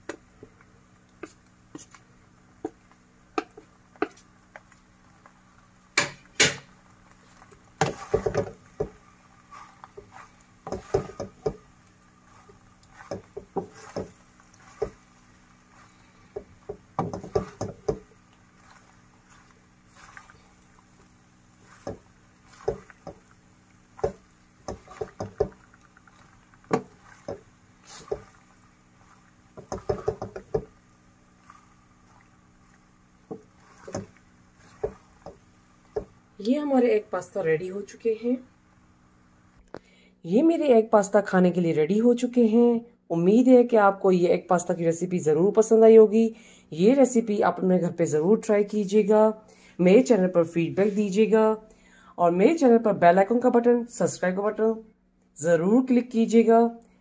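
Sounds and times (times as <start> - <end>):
spatula knocking and scraping pan: 0.0 - 2.0, 2.6 - 5.3, 5.9 - 36.2
faint steady hum: 0.0 - 57.0.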